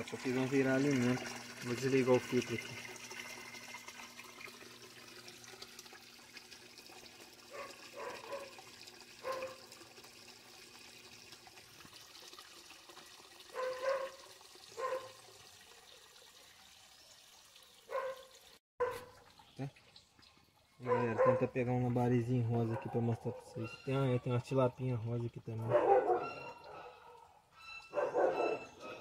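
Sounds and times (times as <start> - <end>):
filter pump humming: 0.0 - 14.0
water splashing into a tank: 0.0 - 22.8
dog barking: 7.5 - 8.6, 9.2 - 9.6, 13.5 - 14.2, 14.8 - 15.2, 17.9 - 19.2, 20.9 - 21.5, 22.6 - 23.6, 25.6 - 29.0.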